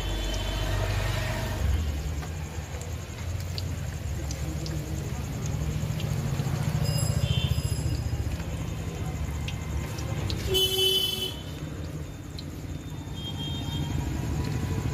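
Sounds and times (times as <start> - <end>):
oil sizzling: 0.0 - 14.9
traffic engine rumble: 0.0 - 14.9
vehicle horn toot: 10.5 - 11.4.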